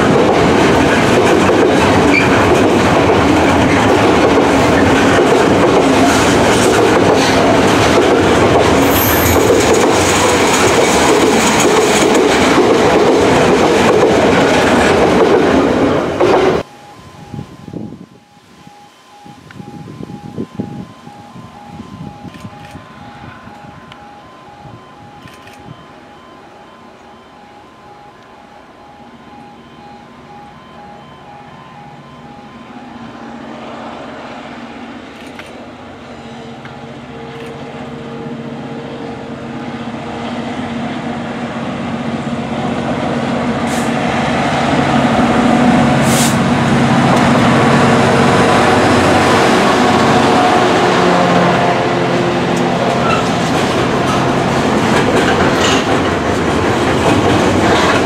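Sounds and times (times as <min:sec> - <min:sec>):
train wheels clattering over rail joints: 0:00.0 - 0:15.6, 0:52.9 - 0:58.0
diesel locomotive engine: 0:00.0 - 0:58.0
pulsing warning tone: 0:16.6 - 0:55.8.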